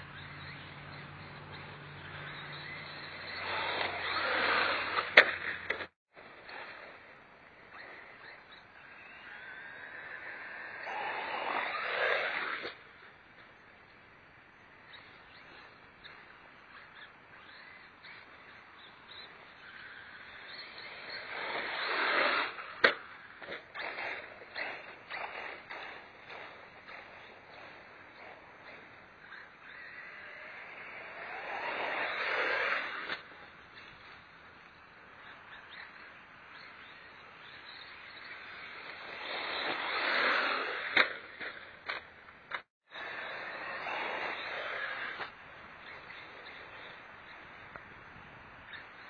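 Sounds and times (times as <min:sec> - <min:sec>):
faint bird chirps: 0:00.0 - 0:05.6, 0:07.6 - 0:39.8, 0:42.9 - 0:49.0
rc truck motor and tyres on dirt: 0:00.0 - 0:49.0.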